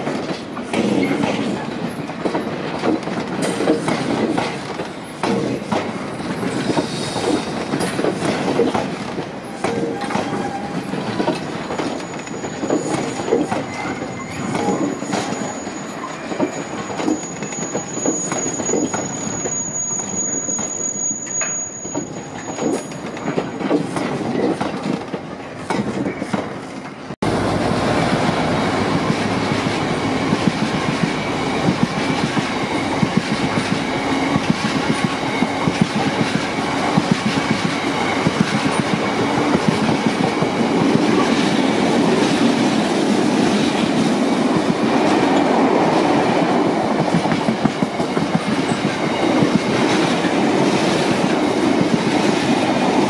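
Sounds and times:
train wheels clattering over rail joints: 0.0 - 27.0, 28.8 - 53.0
high wheel squeal: 11.9 - 23.7, 28.7 - 41.4.

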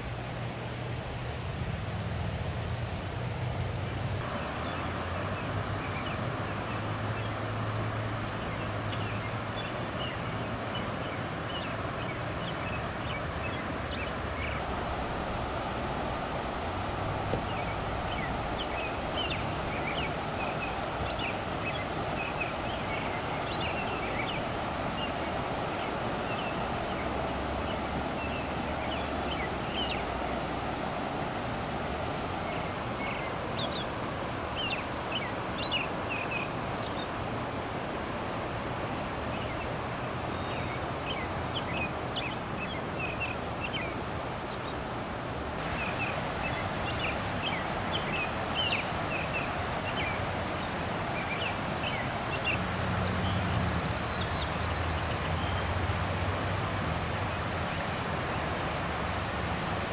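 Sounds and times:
floodwater rushing: 0.0 - 59.9
small birds chirping: 17.3 - 30.2, 39.4 - 56.8.

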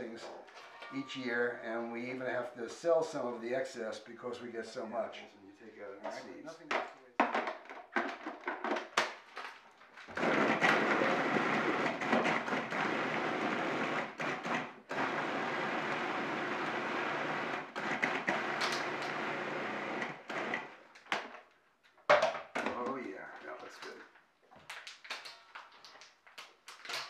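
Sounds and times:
food processor chopping: 10.1 - 20.7.

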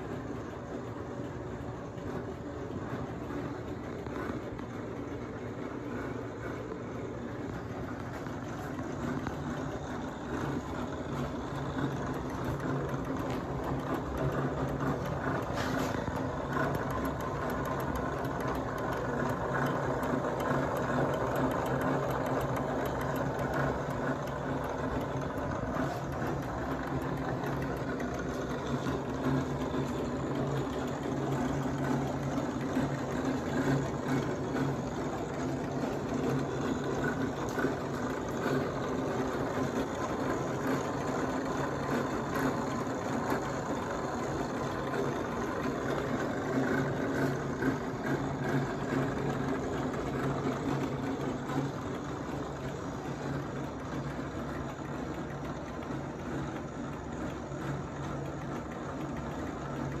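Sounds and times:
light bar rotator motors whirring: 0.0 - 60.0.

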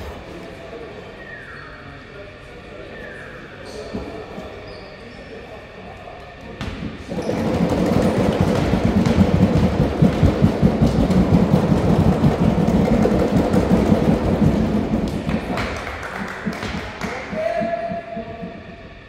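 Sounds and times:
voices in a gym: 0.0 - 19.0
echoing thumps in a gym: 6.4 - 19.0.

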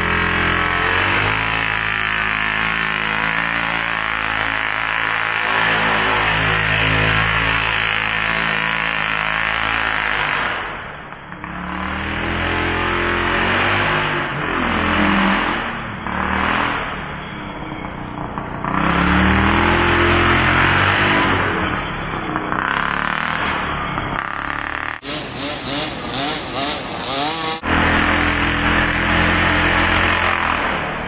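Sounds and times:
two-stroke engine revving: 0.0 - 31.0.

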